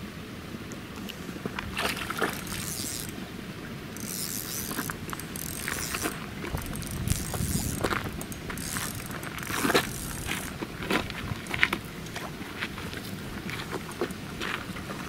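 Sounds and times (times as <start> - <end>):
fishing reel line hissing: 2.2 - 3.2, 4.0 - 10.5.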